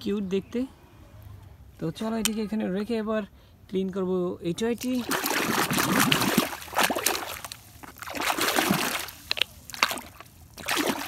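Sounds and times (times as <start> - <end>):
water sloshing and splashing: 4.8 - 11.0.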